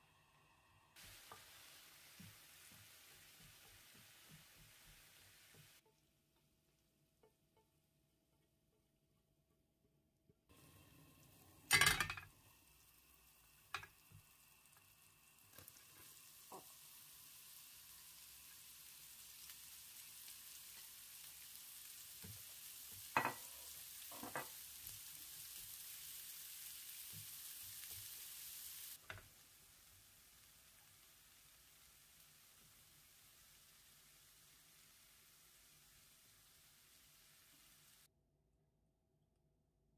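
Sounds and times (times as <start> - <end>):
cabbage sizzling in a pan: 0.0 - 5.8, 10.5 - 38.1.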